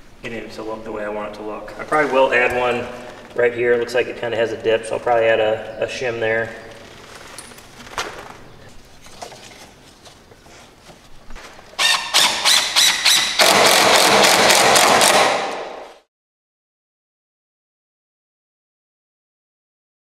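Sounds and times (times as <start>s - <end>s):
impact driver hammering: 12.0s - 15.9s.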